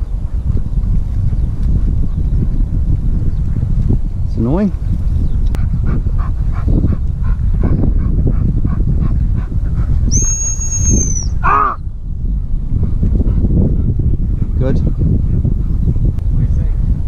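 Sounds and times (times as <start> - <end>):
wind rumble: 0.0 - 17.0
high-pitched dog whistle: 10.1 - 11.4
dog yelp: 10.1 - 11.8.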